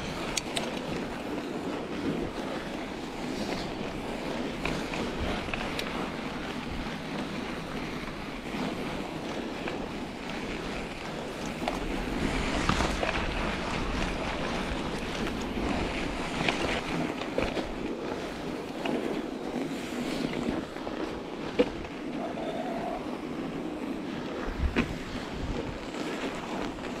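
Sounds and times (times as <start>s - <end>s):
bike tires rolling on snow: 0.0s - 27.0s
wind noise on microphone: 0.0s - 27.0s
sharp knocks from bike: 24.6s - 25.0s.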